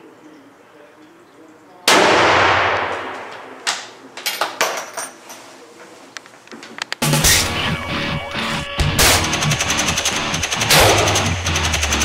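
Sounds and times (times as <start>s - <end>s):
rifle shot with ringing echo: 1.9s - 3.7s, 10.5s - 11.4s.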